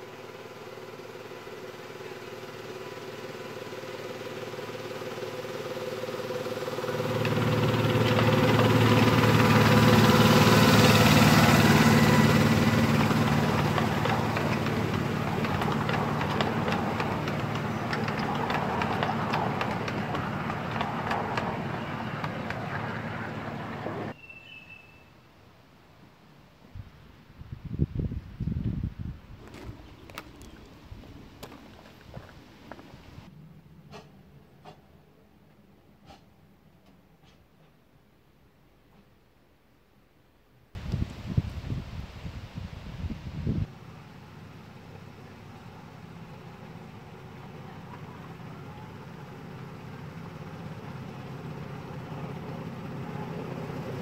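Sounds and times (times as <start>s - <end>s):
miniature railway locomotive passing: 0.0s - 24.7s, 43.6s - 54.0s
fast clicking rattle: 11.5s - 23.0s.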